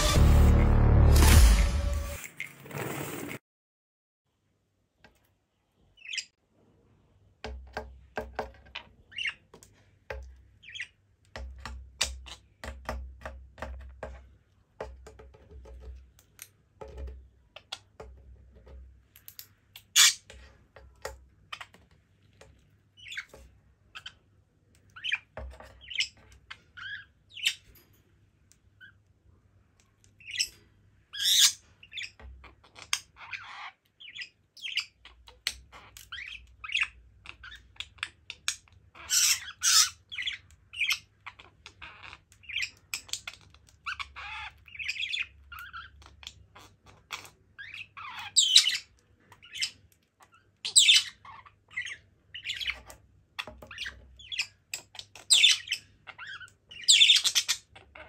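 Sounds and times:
budgerigar chirping and squawking: 6.0s - 6.4s, 8.8s - 9.5s, 10.6s - 11.0s, 19.8s - 20.3s, 24.9s - 27.7s, 30.2s - 58.0s
beak and claws tapping on tile: 7.4s - 23.5s, 52.5s - 57.6s.

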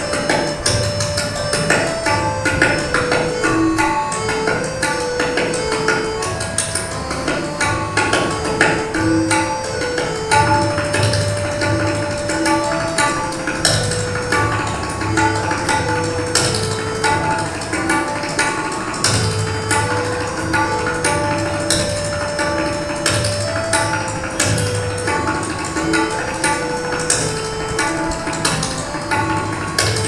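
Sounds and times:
looping melody of held notes: 0.0s - 30.0s
tabla playing: 0.0s - 30.0s.

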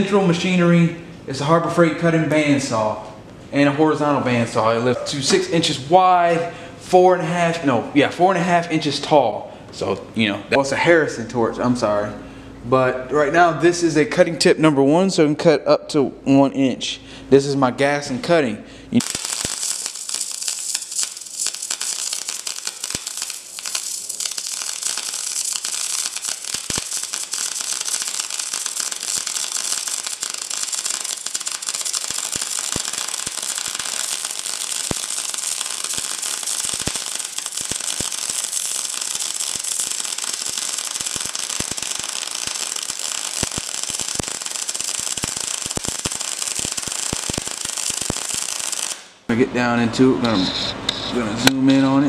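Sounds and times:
welding spatter pattering: 19.0s - 49.2s
welding arc crackling: 19.0s - 49.3s.

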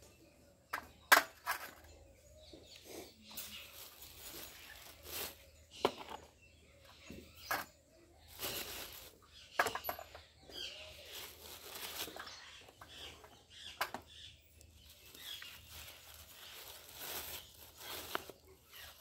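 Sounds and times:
plastic bag rustling: 3.3s - 6.4s, 8.2s - 13.2s, 14.7s - 19.0s.

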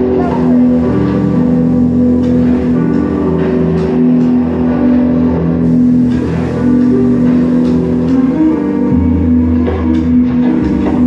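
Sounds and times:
film soundtrack music: 0.0s - 11.0s.

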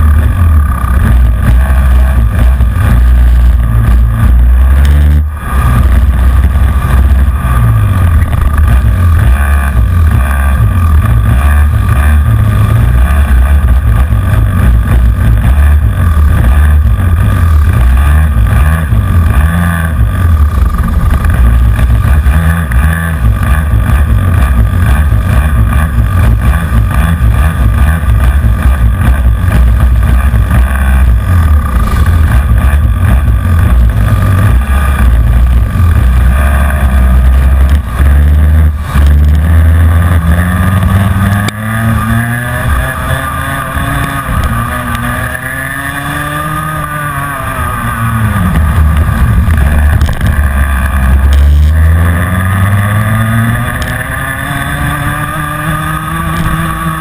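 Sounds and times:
kart engine at racing speed: 0.0s - 57.0s
other karts running: 0.0s - 57.0s.

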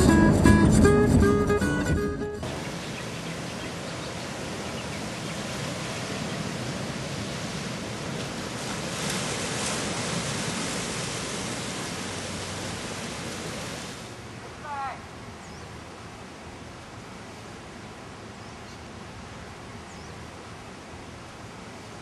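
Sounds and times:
ocean waves washing over rocks: 2.4s - 14.4s.

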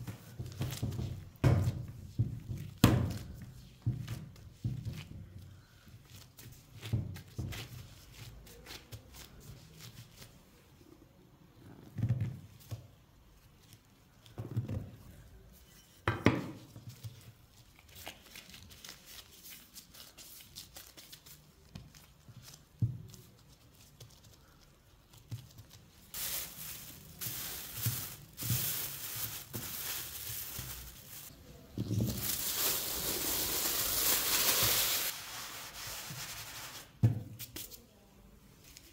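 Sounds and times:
hands kneading dough: 0.0s - 15.6s, 16.5s - 38.9s
cling film crinkling: 32.1s - 35.1s.

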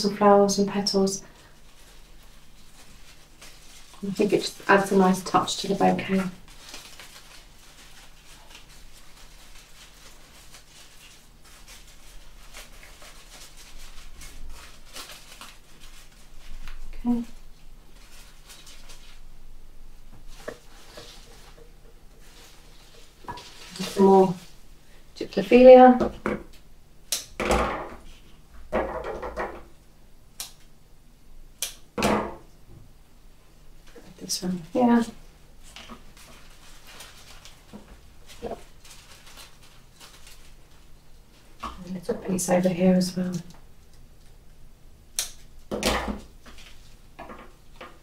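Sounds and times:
leaves rustling and crackling: 0.2s - 19.3s, 20.2s - 24.7s, 33.9s - 43.5s.

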